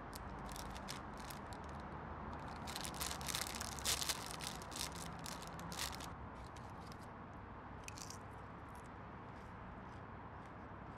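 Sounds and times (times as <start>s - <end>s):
crisp packet crinkling: 0.4s - 1.7s, 2.4s - 6.1s
bag crackling as pulled open: 2.5s - 6.1s.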